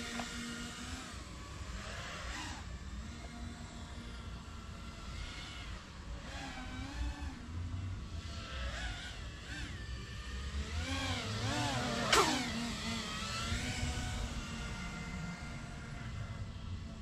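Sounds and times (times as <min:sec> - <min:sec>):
quadcopter propellers whining: 0:00.0 - 0:17.0.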